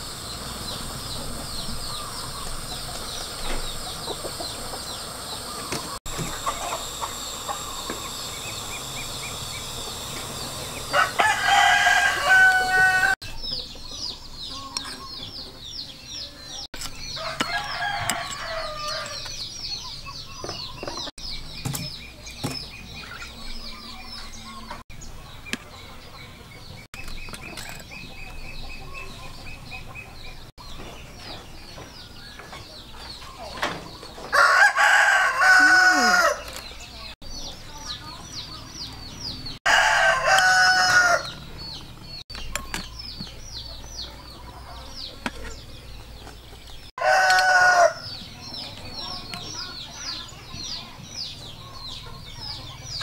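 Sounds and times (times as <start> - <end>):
high-pitched bird chirping: 0.0 - 34.1
rooster crowing: 10.7 - 13.2, 17.2 - 19.2, 34.3 - 36.5, 39.6 - 41.4, 47.0 - 48.1.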